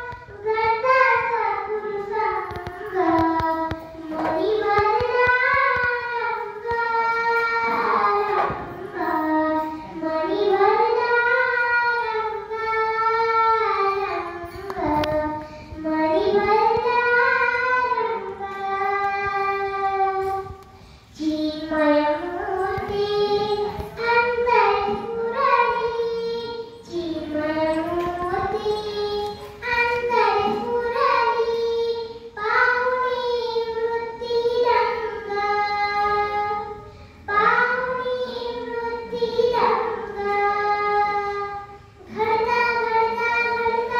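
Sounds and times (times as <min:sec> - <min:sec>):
girl singing devotional verse: 0:00.0 - 0:43.9.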